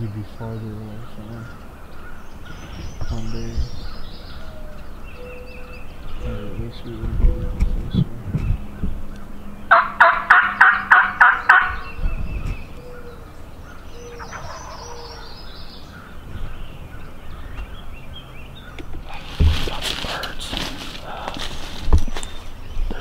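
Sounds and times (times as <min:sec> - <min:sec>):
faint bird calls: 0:00.0 - 0:23.0
turkey yelping: 0:09.7 - 0:12.0, 0:12.8 - 0:16.1
rustling: 0:18.9 - 0:23.0.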